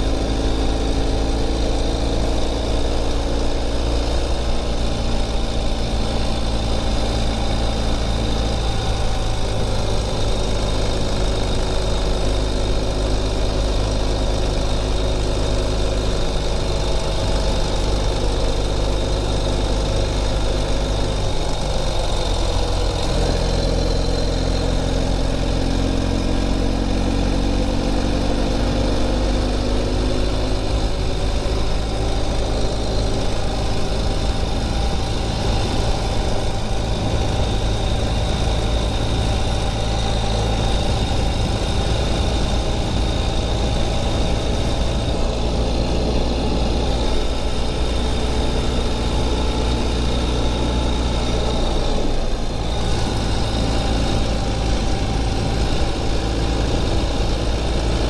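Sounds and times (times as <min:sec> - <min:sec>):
motorcycle engine running: 0:00.0 - 0:58.0
wind noise: 0:33.2 - 0:48.8.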